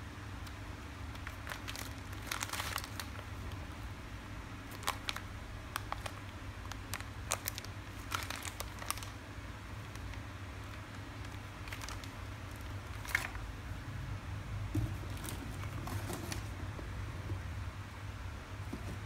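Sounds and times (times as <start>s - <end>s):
plastic bags crinkling: 0.4s - 3.6s, 4.7s - 9.2s, 9.8s - 13.5s.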